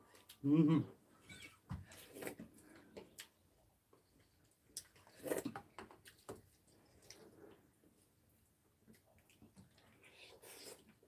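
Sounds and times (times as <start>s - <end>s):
chewing: 4.0s - 7.7s, 8.8s - 11.0s.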